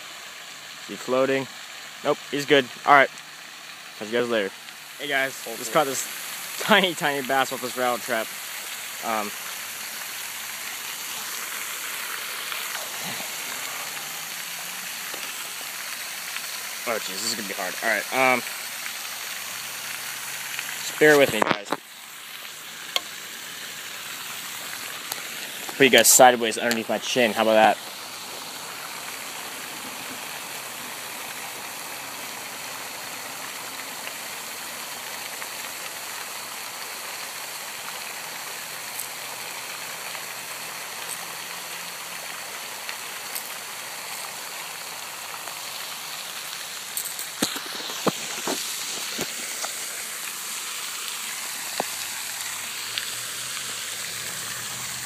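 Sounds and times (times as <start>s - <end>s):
steady rushing hiss: 0.0s - 55.0s.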